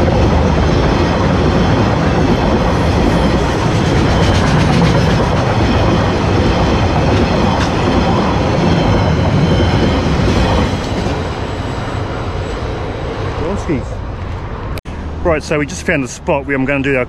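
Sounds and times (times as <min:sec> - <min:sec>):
train wheels on rails: 0:00.0 - 0:13.2.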